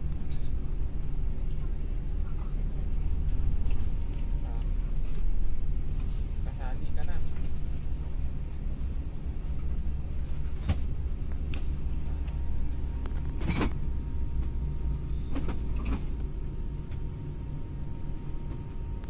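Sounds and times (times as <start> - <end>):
bus engine and road drone: 0.0 - 19.0.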